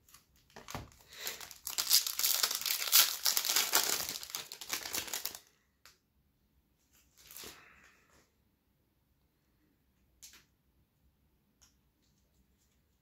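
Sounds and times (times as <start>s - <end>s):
foil wrapper crinkling: 0.1s - 5.5s.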